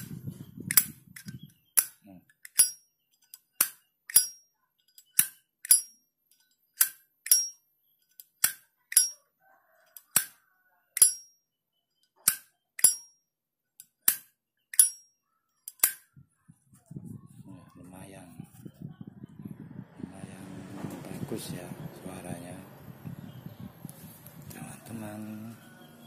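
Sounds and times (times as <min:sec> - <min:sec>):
lighter lid clinking open and shut: 0:00.7 - 0:02.8, 0:03.6 - 0:04.4, 0:05.1 - 0:05.9, 0:06.8 - 0:07.5, 0:08.4 - 0:09.2, 0:11.0 - 0:11.2, 0:12.3 - 0:13.0, 0:15.7 - 0:16.0.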